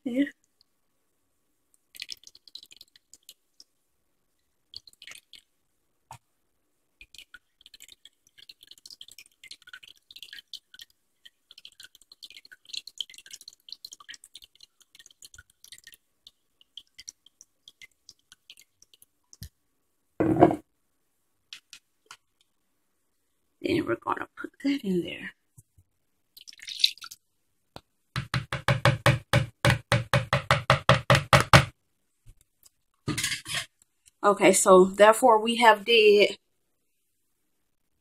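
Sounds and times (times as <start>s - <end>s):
liquid dripping into plastic cup: 1.7s - 3.8s, 4.7s - 5.5s, 7.0s - 19.6s.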